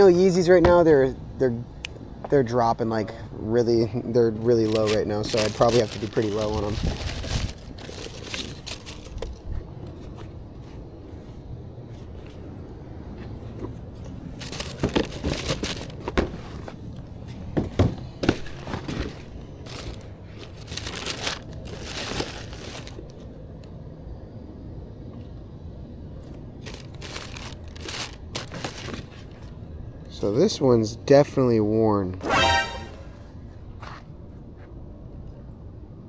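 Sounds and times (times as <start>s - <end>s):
paper and packaging crinkling: 4.4s - 10.0s, 14.4s - 16.8s, 18.2s - 23.2s, 26.6s - 29.5s.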